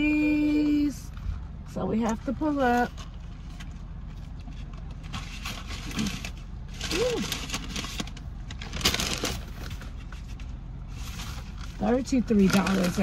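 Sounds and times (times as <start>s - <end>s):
car idling: 0.0s - 13.0s
rustling: 2.8s - 13.0s.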